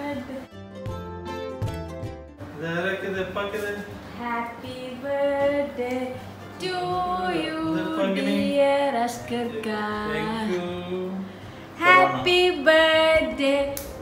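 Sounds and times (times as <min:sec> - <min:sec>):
woman and child singing: 0:04.2 - 0:10.6, 0:11.8 - 0:14.0.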